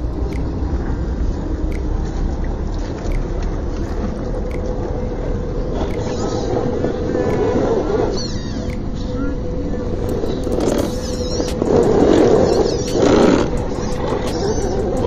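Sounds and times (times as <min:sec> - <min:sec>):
constant low rumble: 0:00.0 - 0:15.0
steady whine: 0:00.0 - 0:15.0
rc car motor and gears: 0:10.0 - 0:15.0.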